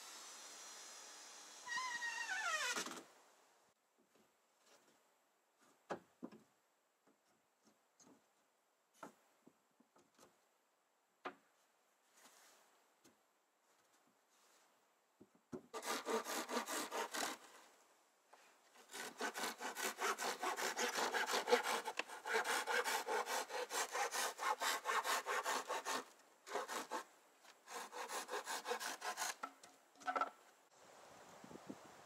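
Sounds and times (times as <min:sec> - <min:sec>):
hand saw cutting wood: 0:15.7 - 0:17.6, 0:18.7 - 0:29.7.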